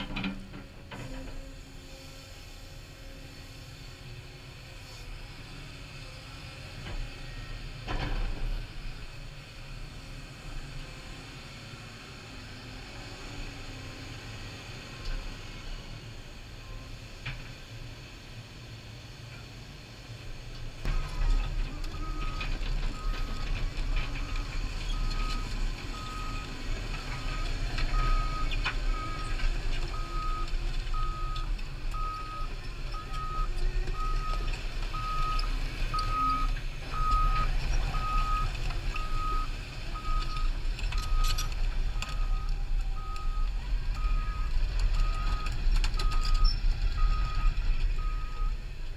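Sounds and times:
diesel engine rumble: 0.0s - 48.9s
excavator travel alarm beeping: 20.9s - 48.6s.

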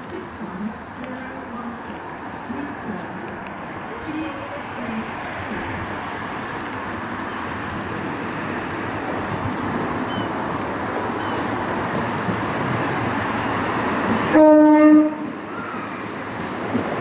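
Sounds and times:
train running past: 0.0s - 17.0s
train horn blast: 14.3s - 15.4s.

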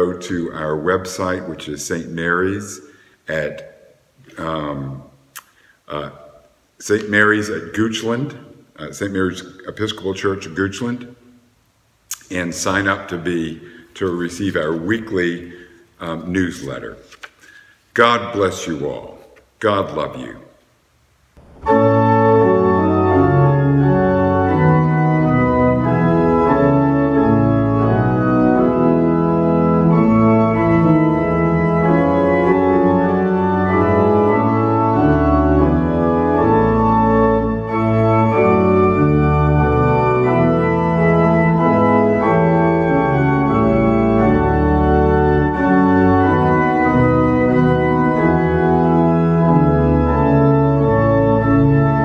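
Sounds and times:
organ playing held chords: 21.4s - 52.0s.

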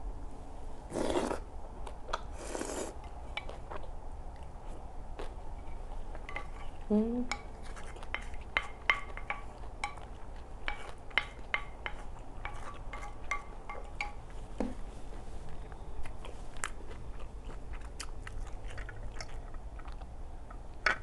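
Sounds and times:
person humming: 6.9s - 7.3s.

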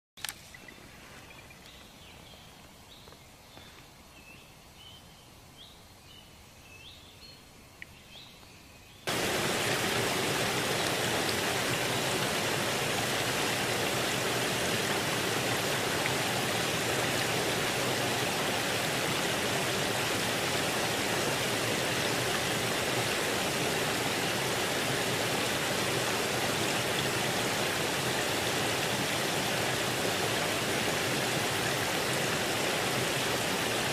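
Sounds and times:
water rushing: 9.1s - 33.9s.

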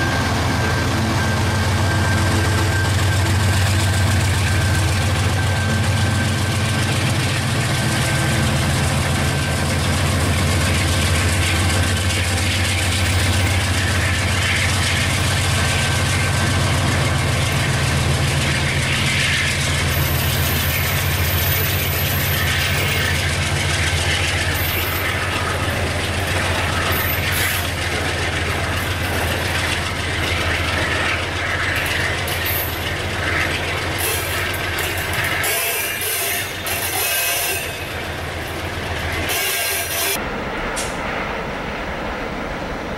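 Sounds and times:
locomotive engine drone: 0.0s - 42.9s
freight wagons clicking and rattling: 19.9s - 36.9s.

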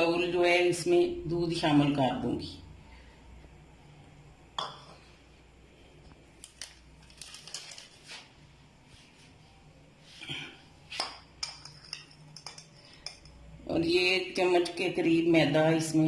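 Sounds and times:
spoon tapping ceramic bowls: 4.6s - 5.0s, 11.0s - 13.5s.

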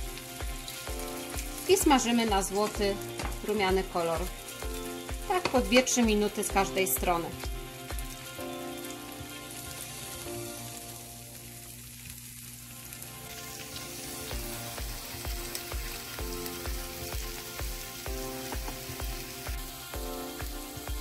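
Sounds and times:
background music with steady beat: 0.0s - 11.2s, 13.1s - 21.0s
pancakes sizzling in hot oil: 0.0s - 21.0s.

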